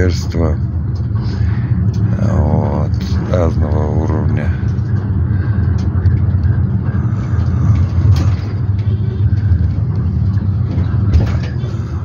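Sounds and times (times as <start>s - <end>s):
minibus engine and road drone: 0.0s - 12.0s.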